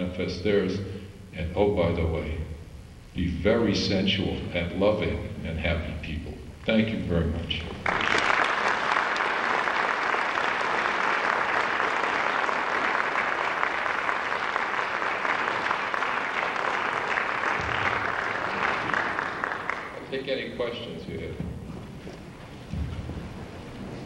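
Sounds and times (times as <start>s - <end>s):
crowd applauding: 7.7s - 21.4s.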